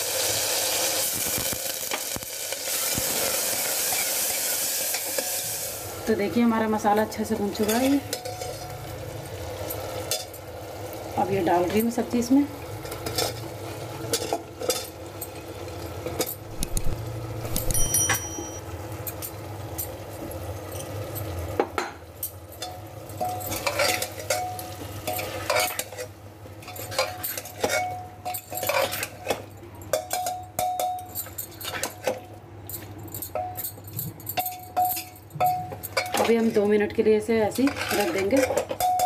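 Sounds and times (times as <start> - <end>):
masala sizzling: 0.0 - 30.8
ladle scraping and clinking on pot: 16.5 - 18.6, 22.6 - 24.5, 25.1 - 32.2, 37.6 - 39.0.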